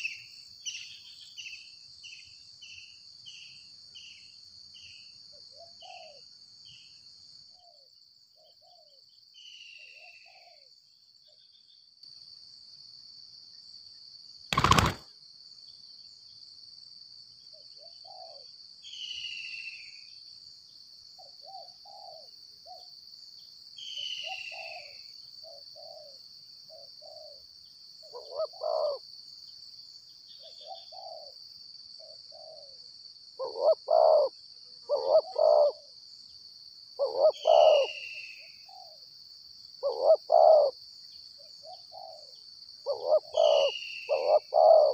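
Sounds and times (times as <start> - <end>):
high insect drone: 0.0 - 44.9
doves cooing: 14.6 - 15.0, 28.2 - 29.0, 33.4 - 34.3, 34.9 - 35.9, 37.0 - 38.0, 39.8 - 40.8, 42.9 - 44.9.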